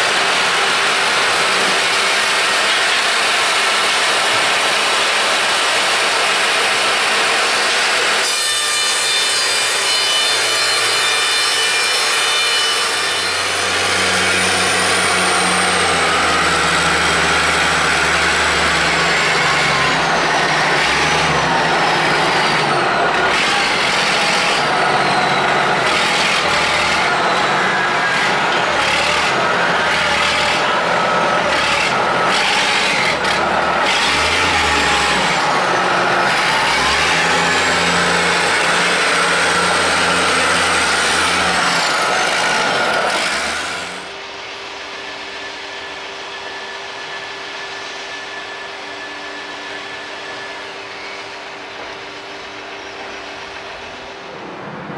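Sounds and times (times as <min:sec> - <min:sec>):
band saw cutting log: 0:00.0 - 0:44.3
diesel engine running: 0:13.4 - 0:48.0.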